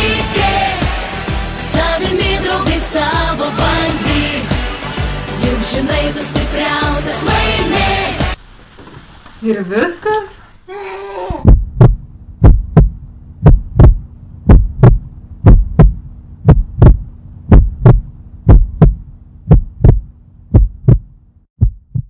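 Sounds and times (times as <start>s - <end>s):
heartbeat thumps: 11.3s - 22.0s
low hum: 11.4s - 22.0s.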